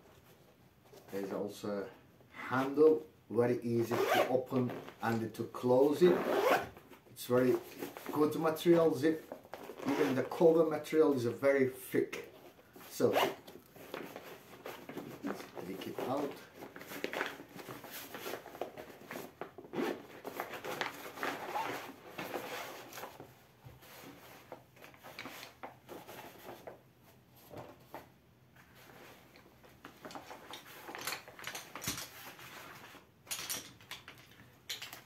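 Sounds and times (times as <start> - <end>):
fabric bag rustling and scraping: 7.5 - 10.4, 12.3 - 28.0.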